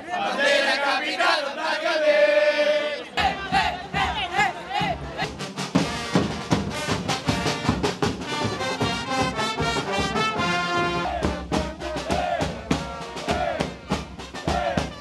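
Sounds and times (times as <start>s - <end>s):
crowd voices: 0.0s - 5.5s, 12.0s - 13.8s
brass band playing: 3.2s - 15.0s
drum beats: 3.2s - 15.0s.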